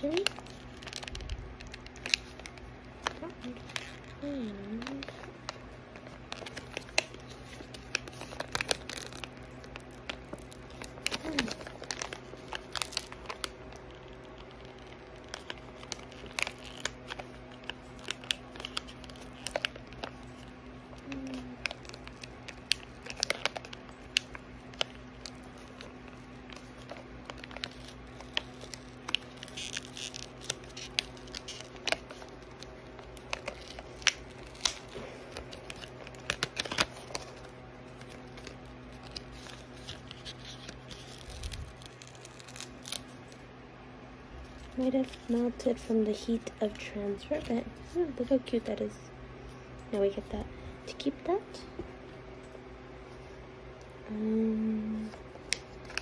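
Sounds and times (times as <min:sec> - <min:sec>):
paper packaging crinkling: 0:00.0 - 0:43.4, 0:44.4 - 0:48.9, 0:54.8 - 0:56.0
cardboard tearing: 0:06.3 - 0:13.4, 0:38.0 - 0:43.1.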